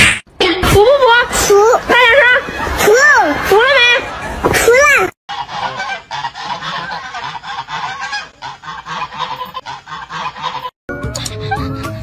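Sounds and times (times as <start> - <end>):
geese honking: 5.3 - 12.0.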